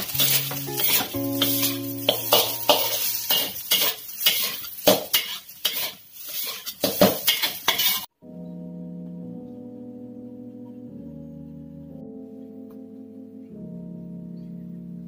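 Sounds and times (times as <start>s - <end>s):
metal spatula scraping a wok: 0.0s - 8.1s.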